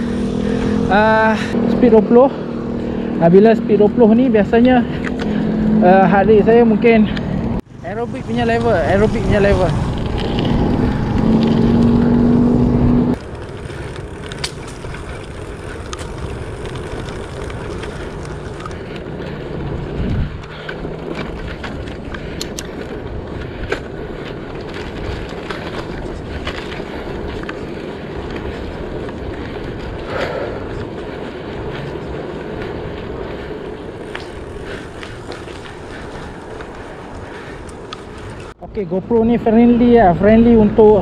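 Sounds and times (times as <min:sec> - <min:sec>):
motor vehicle engine hum: 0:00.0 - 0:41.0
tyres rumbling on asphalt: 0:00.0 - 0:41.0
wind: 0:00.0 - 0:41.0
small clicks and rattles: 0:13.2 - 0:19.4.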